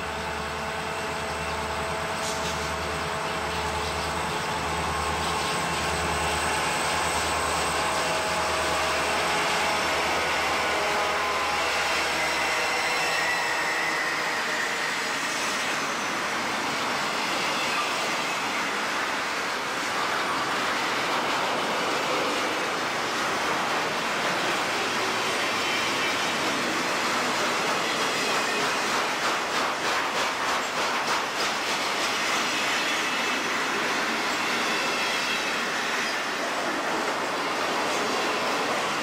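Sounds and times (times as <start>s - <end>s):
diesel locomotive engine throb: 0.0s - 14.4s
train wheels rolling on rails: 0.0s - 39.0s.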